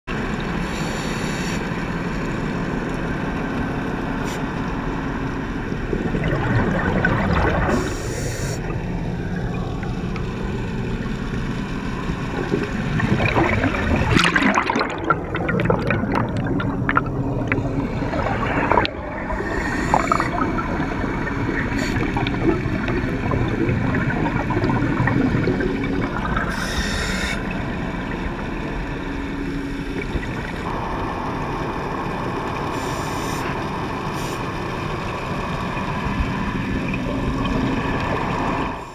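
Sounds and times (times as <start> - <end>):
air bubbling underwater: 5.8 - 10.1, 12.2 - 26.8.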